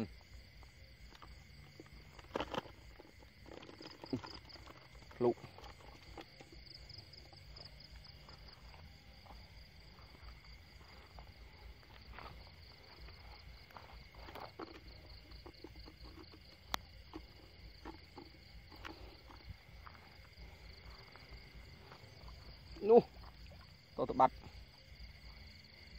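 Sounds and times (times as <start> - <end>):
insects chorus with pulsing trill: 0.0 - 25.9
rustling through wet vegetation: 1.1 - 25.9
soft footsteps: 5.9 - 23.8.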